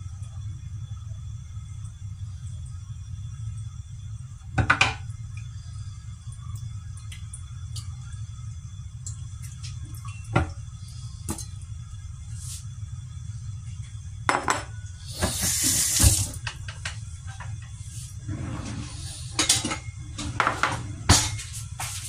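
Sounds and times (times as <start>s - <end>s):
steady low hum: 0.0s - 22.0s
tap water running: 13.7s - 17.9s.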